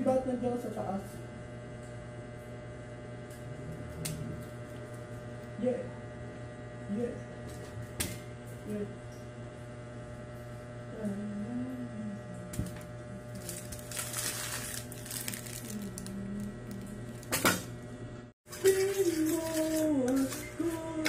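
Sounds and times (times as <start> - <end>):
steady electrical hum: 0.0 - 21.0
plastic sachets crinkling and tearing: 13.4 - 17.4.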